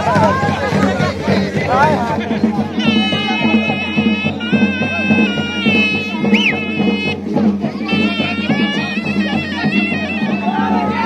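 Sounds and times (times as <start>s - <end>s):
low drum beat: 0.0s - 11.0s
shehnai folk melody: 0.0s - 11.0s.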